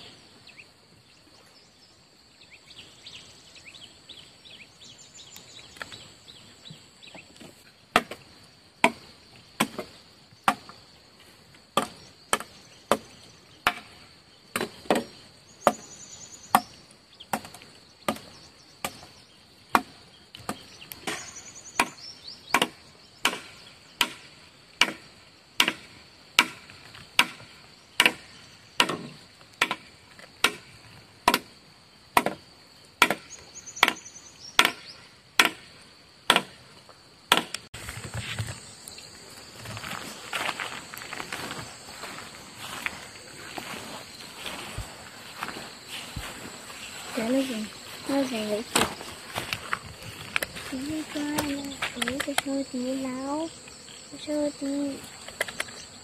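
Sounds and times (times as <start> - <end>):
high insect drone: 0.0 - 56.0
chopping strikes: 7.9 - 8.2, 11.8 - 15.8, 19.7 - 31.5, 32.2 - 32.4, 33.0 - 34.0, 34.6 - 35.7, 36.3 - 36.6, 37.3 - 37.7.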